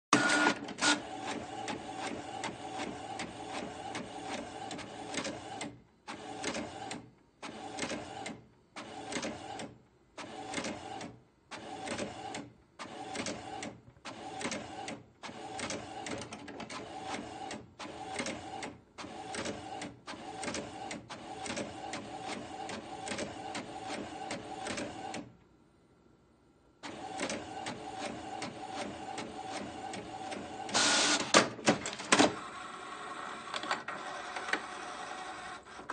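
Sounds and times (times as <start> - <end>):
printer whirring: 0.1 - 25.3, 26.8 - 35.9.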